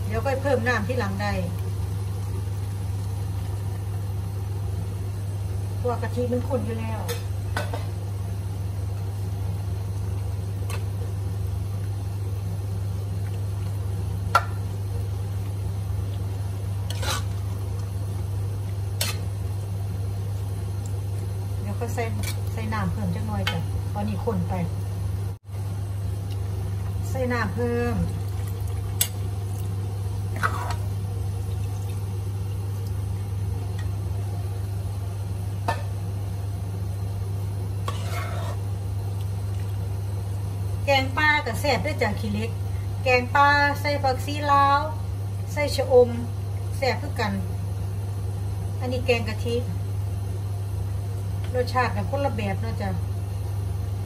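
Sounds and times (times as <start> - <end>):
steady low hum: 0.0 - 54.0
spoon scraping pot: 16.9 - 17.4, 30.3 - 30.9, 37.8 - 38.7.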